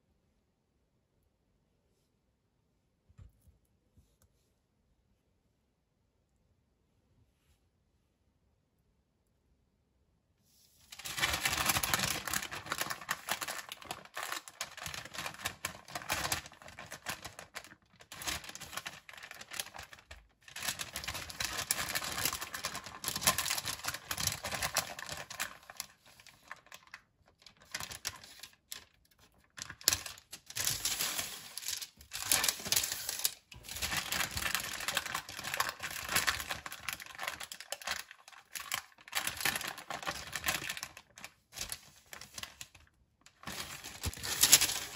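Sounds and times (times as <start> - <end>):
baking paper crinkling: 10.8 - 44.9.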